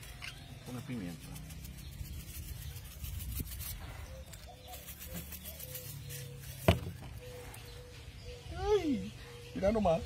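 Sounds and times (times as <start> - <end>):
pepper shaker pattering: 0.8 - 6.8.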